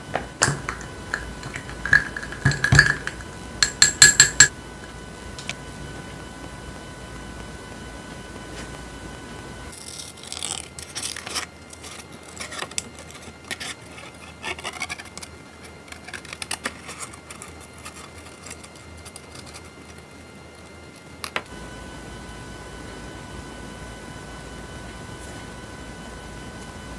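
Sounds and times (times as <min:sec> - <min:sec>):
scissors snipping paper: 0:09.7 - 0:21.4
paper rustling: 0:09.8 - 0:20.1.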